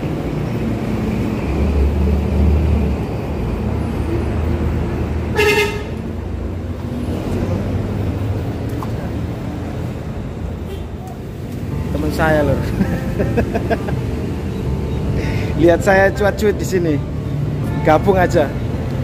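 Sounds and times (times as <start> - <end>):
heavy vehicle rumble: 0.0 - 19.0
road traffic: 0.0 - 19.0
vehicle horn toot: 5.3 - 6.0.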